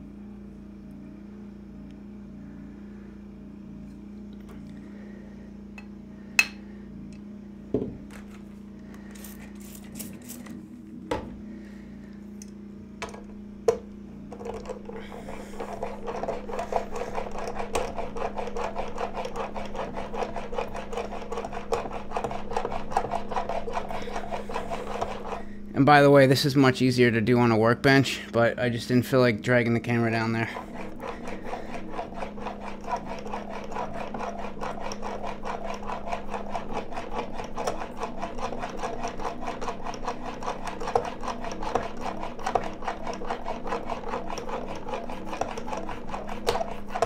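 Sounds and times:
steady low hum: 0.0 - 47.0
blade rubbing on sharpening stone: 15.2 - 25.4, 30.5 - 47.0.

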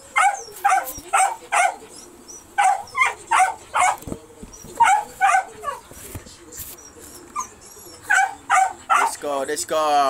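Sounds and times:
dog barking: 0.1 - 1.8, 2.6 - 4.1, 4.8 - 5.8, 8.1 - 9.2.

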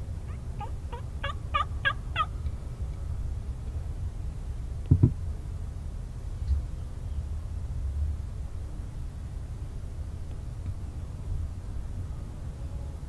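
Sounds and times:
turkey gobbling: 0.3 - 2.4
short low thumps: 4.9 - 5.2.

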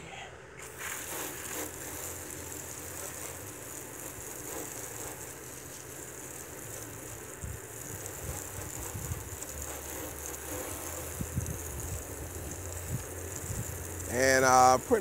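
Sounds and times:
hose water spraying: 0.6 - 15.0
wind on microphone: 7.4 - 9.4, 11.1 - 13.8.

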